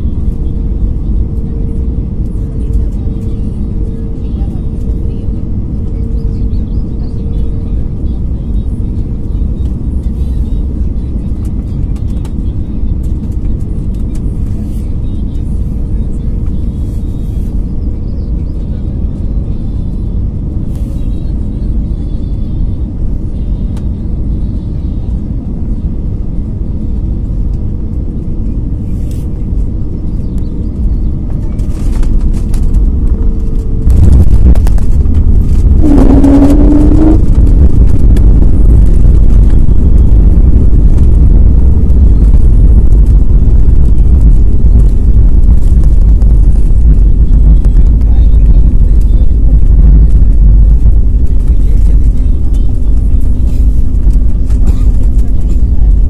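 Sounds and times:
aircraft rushing roar: 0.0s - 56.0s
airliner engine drone: 0.0s - 56.0s
rising whine: 22.8s - 56.0s.

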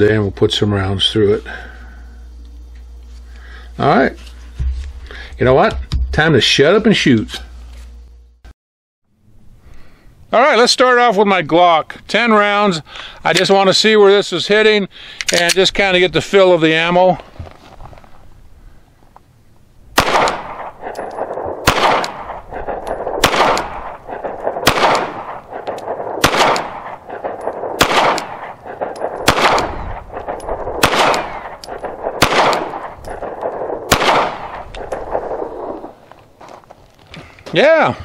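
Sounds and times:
pistol shots echoing: 20.0s - 35.9s.

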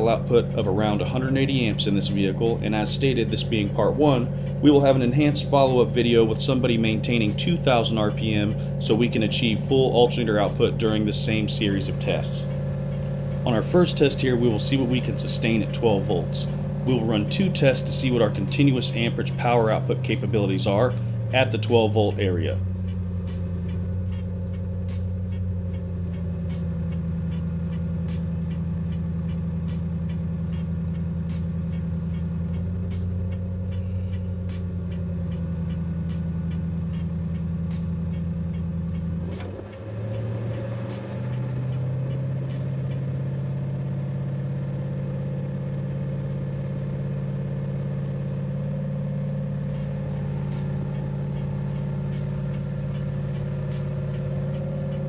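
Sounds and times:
car engine idling: 0.0s - 55.0s
click: 32.1s - 43.0s.

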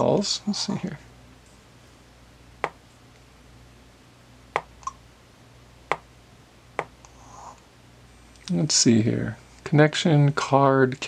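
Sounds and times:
faint steady hum: 0.0s - 11.0s
stylus tapping touchscreen: 4.6s - 5.0s.

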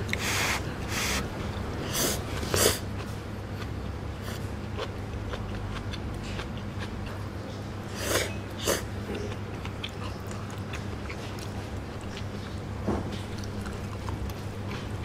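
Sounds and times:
steady low hum: 0.0s - 15.0s
wet chewing clicks: 9.1s - 12.6s.

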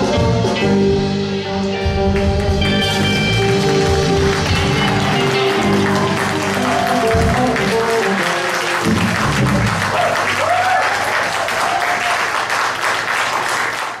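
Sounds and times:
rock band final chord: 0.2s - 9.9s
audience applauding and cheering: 2.1s - 14.0s.

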